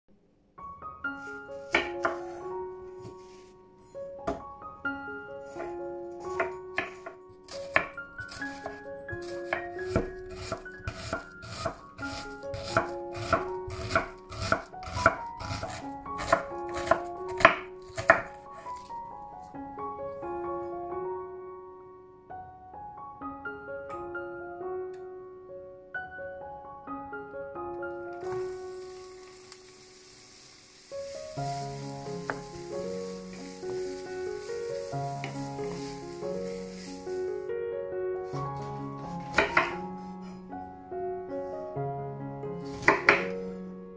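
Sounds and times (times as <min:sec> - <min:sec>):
soft piano music: 0:00.2 - 0:43.9
knife chopping on cutting board: 0:07.7 - 0:18.4, 0:38.6 - 0:39.8, 0:42.7 - 0:43.3
food sizzling in hot oil: 0:28.2 - 0:37.4.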